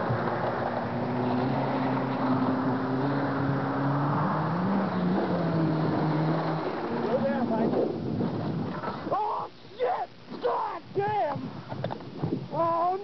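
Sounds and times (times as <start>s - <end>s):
car engine running: 0.0s - 9.1s.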